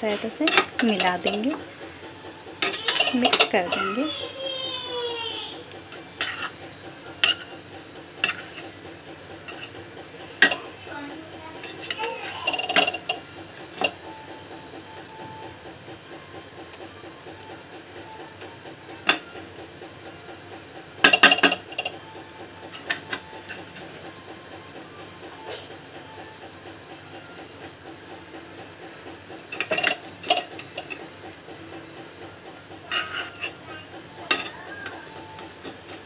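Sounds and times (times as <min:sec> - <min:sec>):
metal spatula knocking pan: 0:00.4 - 0:01.6, 0:02.6 - 0:03.8, 0:08.2 - 0:08.7, 0:34.3 - 0:34.6.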